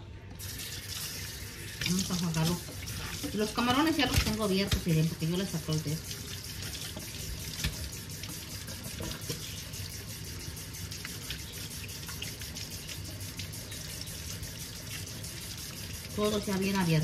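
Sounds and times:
faucet water splashing over hands: 0.4s - 17.0s.

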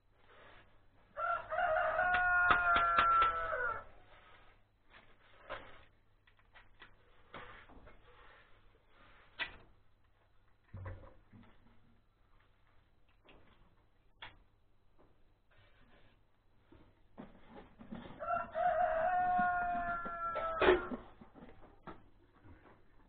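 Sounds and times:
rooster crowing: 1.2s - 4.0s, 18.2s - 21.0s.

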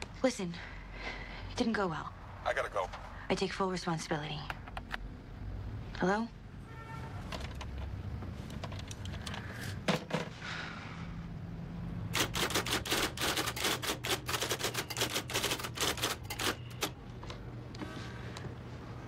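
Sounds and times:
typewriter keys clacking: 12.1s - 17.0s.

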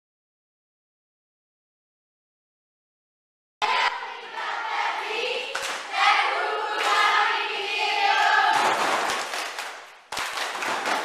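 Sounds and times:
girls and women singing in unison: 3.6s - 9.2s.

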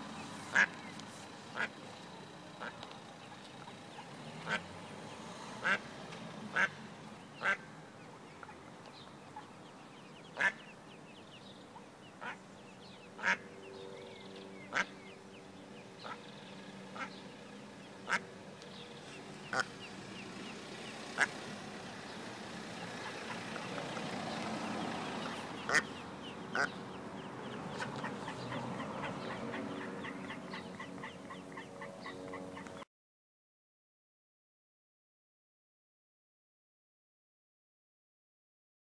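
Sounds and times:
duck quacking: 0.5s - 0.7s, 1.5s - 1.7s, 4.4s - 4.6s, 5.6s - 5.8s, 6.5s - 6.7s, 7.4s - 7.6s, 10.4s - 10.6s, 13.2s - 13.4s, 14.7s - 14.9s, 17.0s - 17.2s, 18.0s - 18.2s, 25.1s - 26.8s, 27.7s - 32.6s.

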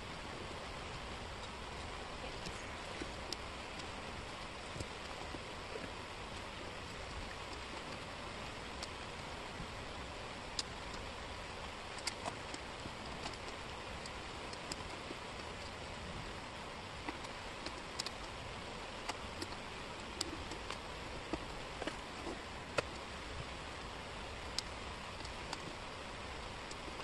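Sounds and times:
steady hiss: 0.0s - 27.0s.

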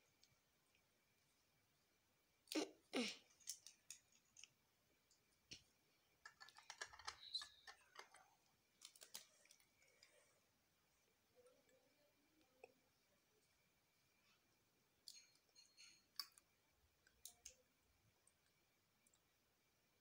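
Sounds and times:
plastic bricks clicking together: 6.2s - 8.2s.

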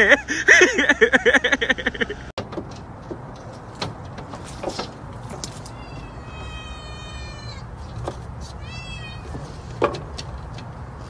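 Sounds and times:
kitten meowing: 5.7s - 7.6s, 8.6s - 9.4s.

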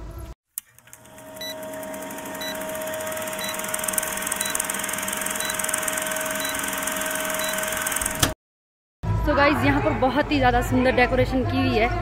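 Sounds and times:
film projector rattle and hiss: 0.8s - 8.4s
short high beeps: 3.3s - 8.0s.

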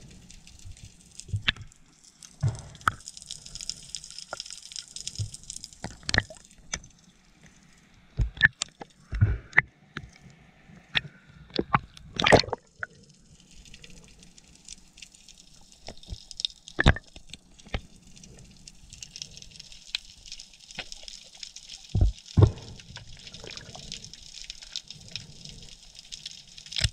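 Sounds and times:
bubbling water: 0.0s - 6.8s, 11.6s - 13.1s, 15.7s - 18.3s, 19.0s - 26.9s
sharp clicks and knocks underwater: 0.3s - 10.1s, 10.9s - 12.7s, 14.6s - 26.9s.

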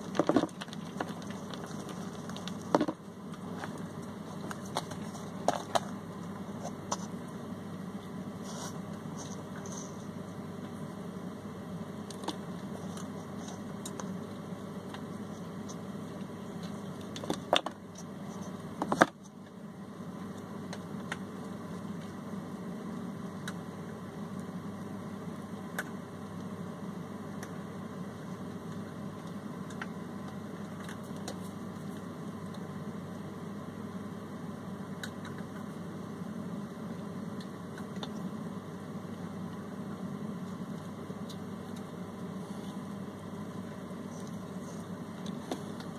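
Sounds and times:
low background hum: 0.0s - 45.9s.

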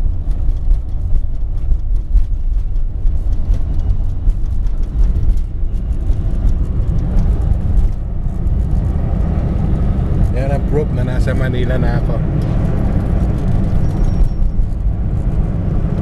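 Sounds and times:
small clicks and rattles: 0.0s - 10.4s
engine and tyre rumble in car: 0.0s - 16.0s.

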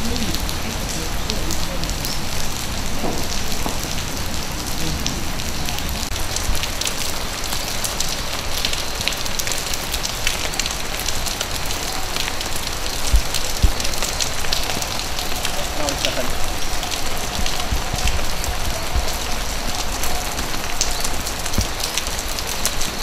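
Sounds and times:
steady rain pattering: 0.0s - 23.0s
soft low thumps: 16.3s - 20.6s.

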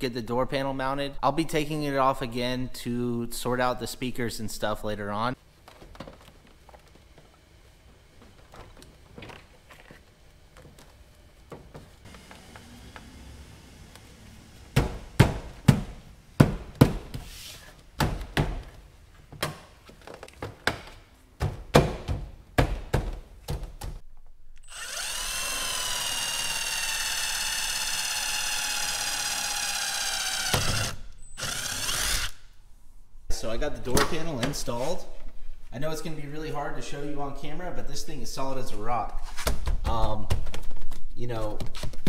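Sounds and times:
cordless drill drilling: 24.6s - 32.4s.

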